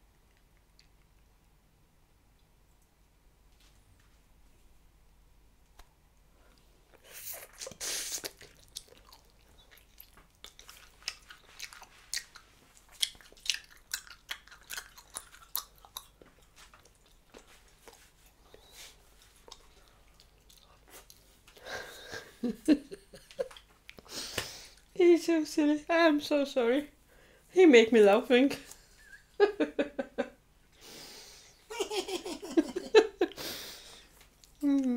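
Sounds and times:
mouth chewing gum: 0:06.9 - 0:21.4.

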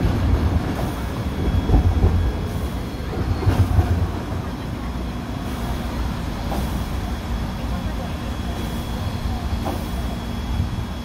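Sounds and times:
steam locomotive rumble: 0:00.0 - 0:11.0
steam hissing: 0:00.6 - 0:04.2, 0:04.9 - 0:11.0.

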